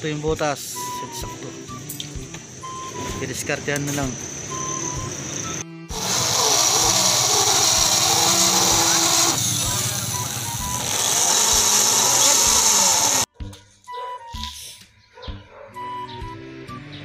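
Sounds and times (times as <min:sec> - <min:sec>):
electric drill boring metal: 0:05.9 - 0:13.3.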